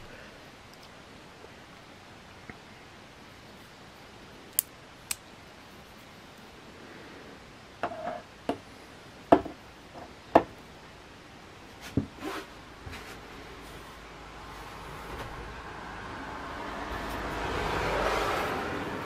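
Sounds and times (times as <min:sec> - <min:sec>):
multitool metal clicks and snaps: 0:04.5 - 0:05.2.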